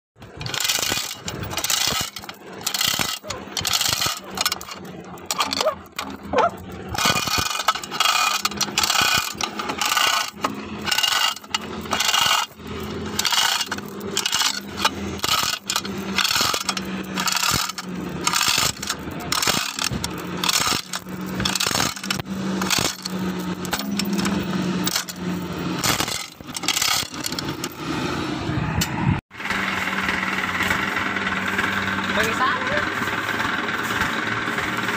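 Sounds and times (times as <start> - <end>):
steel chain clinking and rattling: 0.2 - 27.8.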